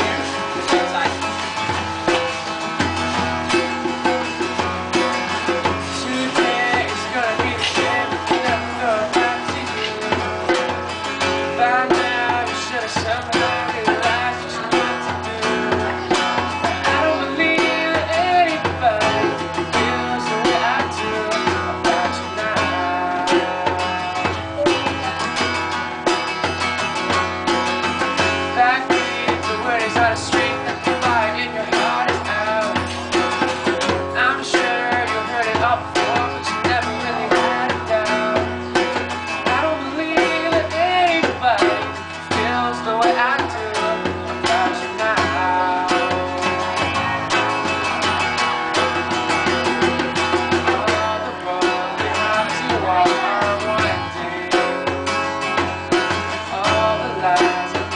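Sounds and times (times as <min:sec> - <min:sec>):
acoustic guitar strumming: 0:00.0 - 0:57.9
hand drum beat: 0:00.0 - 0:57.9
young man singing: 0:00.0 - 0:57.9.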